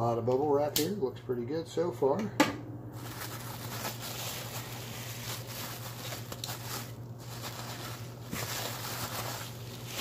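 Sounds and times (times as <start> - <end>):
steady low hum: 0.0 - 10.0
bubble wrap crinkling: 3.0 - 10.0.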